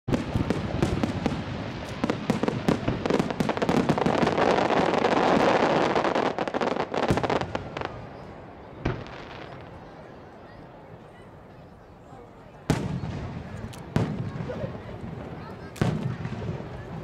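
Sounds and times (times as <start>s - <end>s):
fireworks crackling: 0.1s - 10.0s, 12.7s - 17.0s
firework bang: 12.7s - 17.0s.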